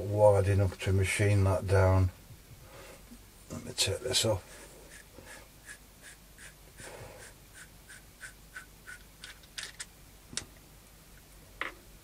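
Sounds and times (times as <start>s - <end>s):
threads rasping: 4.2s - 9.5s.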